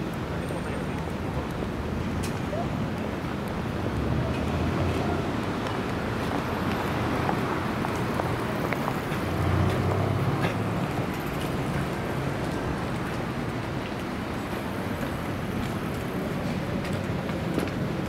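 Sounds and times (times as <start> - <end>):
road traffic: 0.0 - 18.0.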